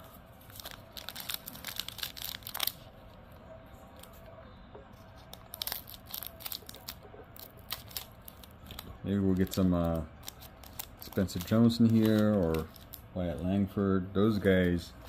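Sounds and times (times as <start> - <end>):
foil wrapper crinkling and tearing: 0.4 - 2.9, 5.2 - 13.0.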